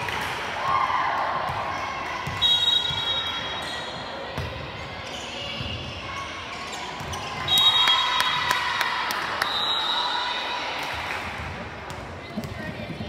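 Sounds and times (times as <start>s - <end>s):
crowd voices: 0.0s - 13.0s
shoe squeaks: 4.8s - 7.8s.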